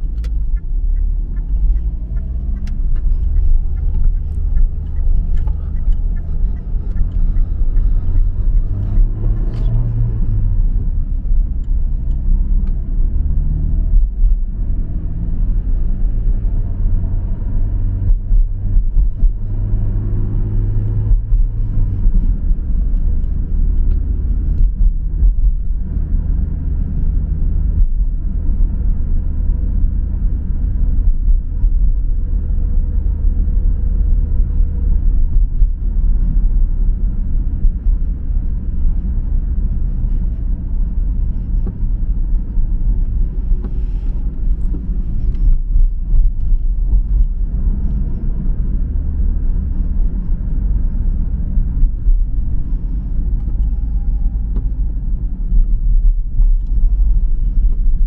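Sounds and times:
car engine and road rumble: 0.0s - 58.0s.

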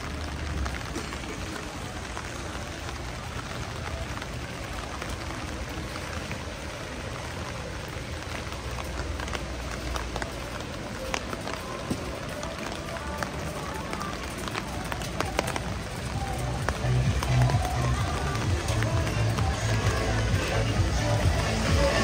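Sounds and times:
raindrops tapping: 0.0s - 22.0s
steady rain: 0.0s - 22.0s.

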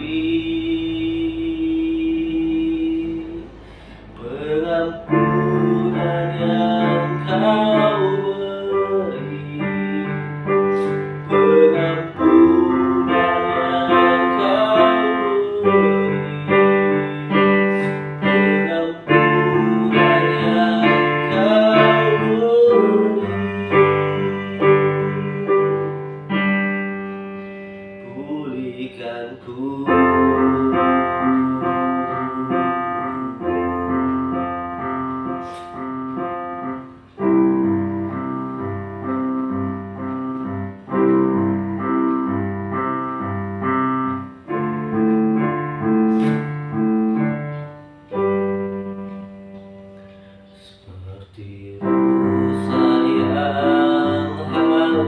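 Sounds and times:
digital piano chords: 0.0s - 55.0s
person singing or humming: 4.2s - 26.4s, 28.0s - 38.2s, 50.6s - 55.0s.

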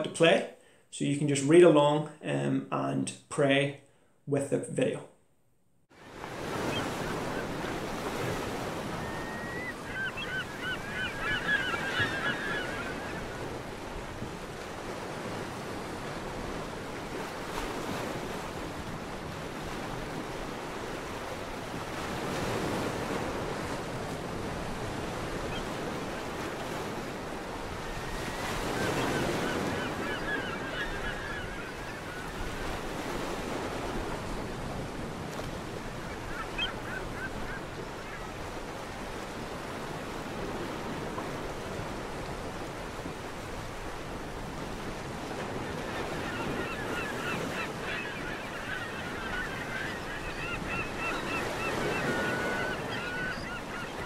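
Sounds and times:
surf washing on shore: 5.9s - 54.0s
quick bird calls: 9.0s - 13.3s.

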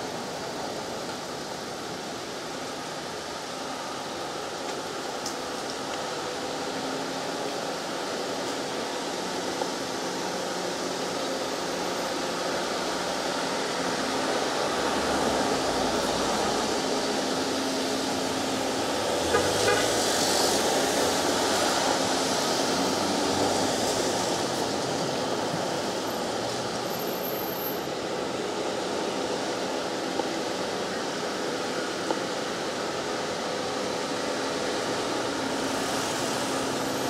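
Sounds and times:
road traffic: 0.0s - 37.0s.

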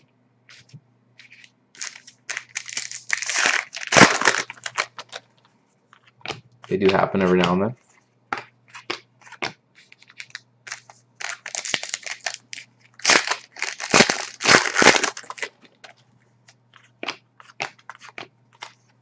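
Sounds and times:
trading cards sliding and flicking: 0.5s - 1.5s
foil wrapper crinkling: 1.8s - 5.2s, 8.8s - 15.8s.

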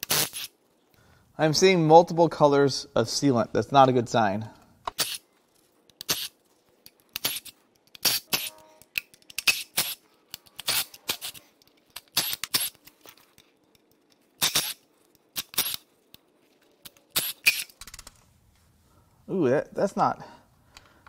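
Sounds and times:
cordless ratchet bursts: 0.0s - 0.5s, 12.0s - 12.8s, 14.4s - 14.8s, 15.4s - 15.9s, 16.8s - 18.1s.

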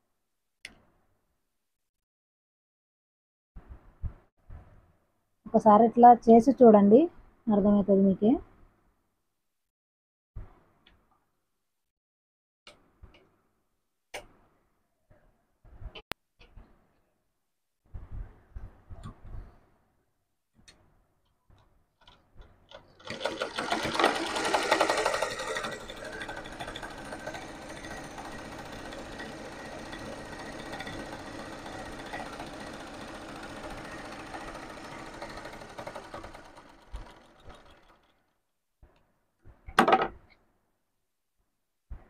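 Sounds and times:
sewing machine stitching: 22.0s - 38.3s.

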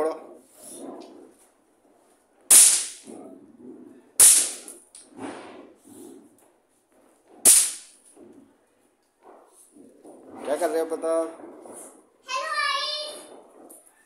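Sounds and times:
toy firecrackers cracking: 2.5s - 3.2s, 4.2s - 5.3s, 7.4s - 8.1s.

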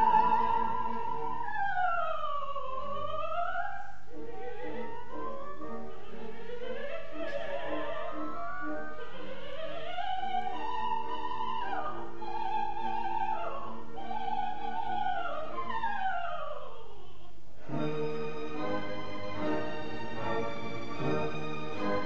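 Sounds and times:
soprano singing: 0.0s - 22.0s
orchestra playing: 17.6s - 22.0s.

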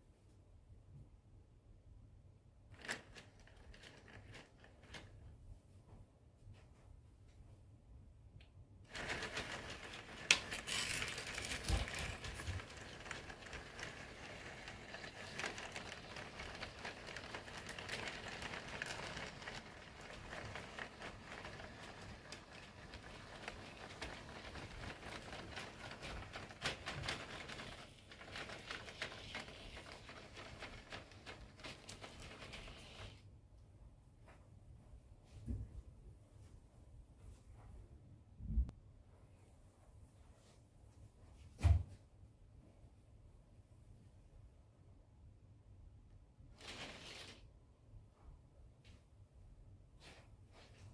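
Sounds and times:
model train rolling on track: 8.9s - 33.2s.

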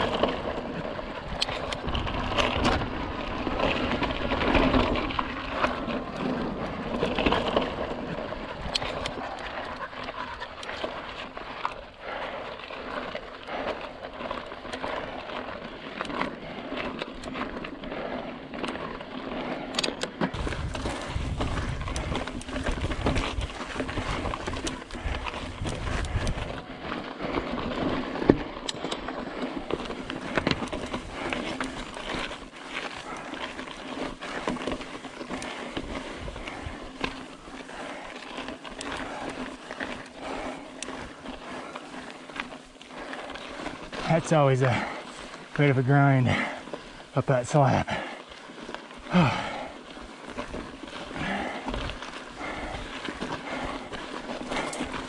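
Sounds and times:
bike clicks and rattles: 0.0s - 55.0s
tyres rolling on rock: 0.0s - 55.0s
wind rumble on microphone: 20.3s - 27.0s.

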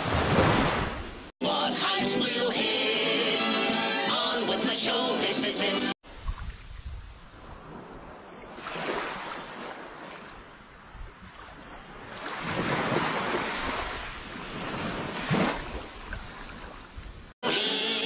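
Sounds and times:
small waves washing on sand: 6.1s - 17.3s.

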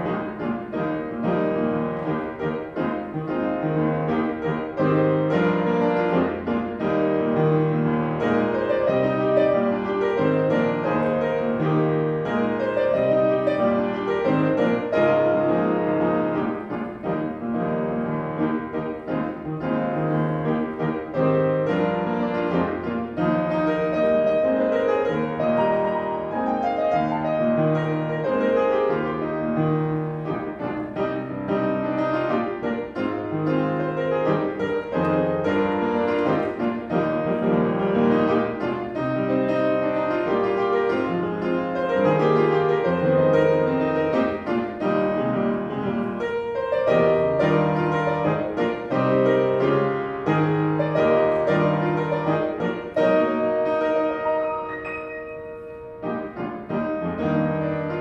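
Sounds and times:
piano music: 0.0s - 58.0s.

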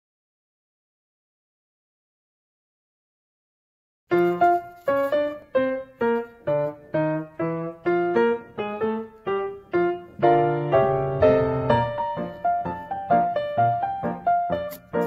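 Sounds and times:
solo piano melody: 4.1s - 15.0s.

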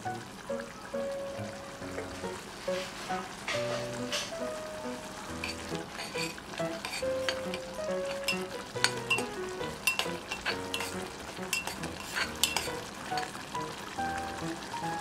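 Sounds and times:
sauce bubbling: 0.0s - 15.0s
ladle clinking against pot: 5.4s - 13.3s.

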